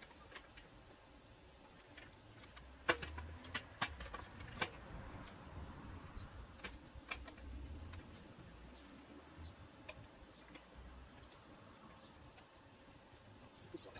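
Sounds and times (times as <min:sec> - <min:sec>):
wooden board clicking and knocking: 0:01.7 - 0:05.3.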